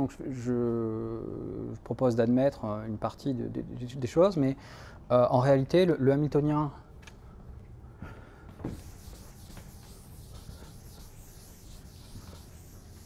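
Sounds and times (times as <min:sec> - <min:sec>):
eraser rubbing on chalkboard: 0:08.6 - 0:13.0.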